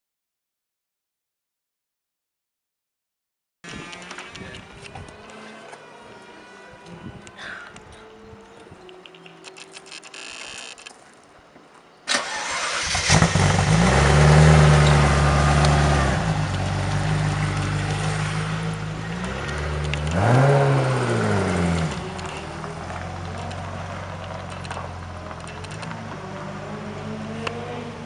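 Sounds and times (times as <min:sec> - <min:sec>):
car engine starting and idling: 0:12.1 - 0:28.0
engine revving: 0:12.1 - 0:28.0.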